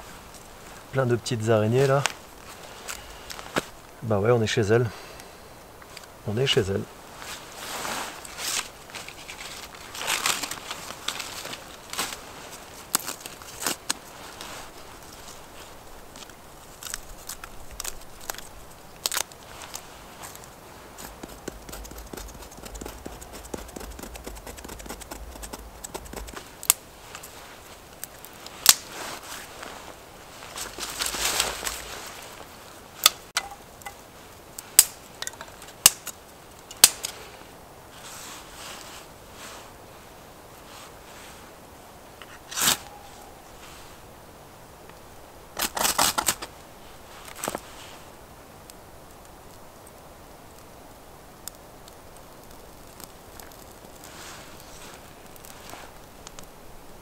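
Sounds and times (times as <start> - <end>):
sticks rustling on dry leaves: 0.0 - 4.0, 5.8 - 44.1, 45.0 - 48.2, 51.5 - 56.7
hands scraping tinder and kindling: 6.6 - 34.0, 42.2 - 44.0, 53.4 - 56.1.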